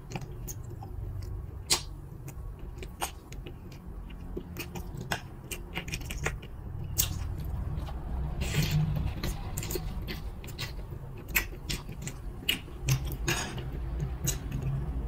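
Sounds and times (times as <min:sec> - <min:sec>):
chewing fried food: 0:00.0 - 0:15.0
mouth clicks and smacks: 0:00.0 - 0:15.0.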